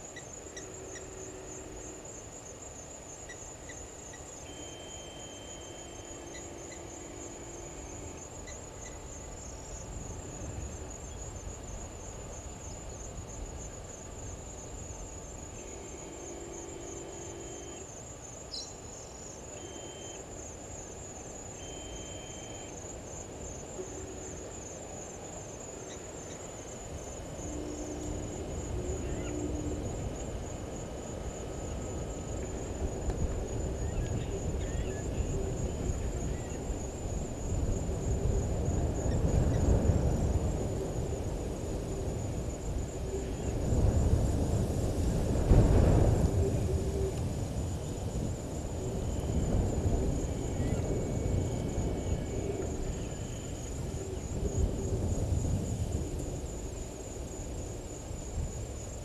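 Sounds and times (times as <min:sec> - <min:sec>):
crickets trilling: 0:00.0 - 0:59.0.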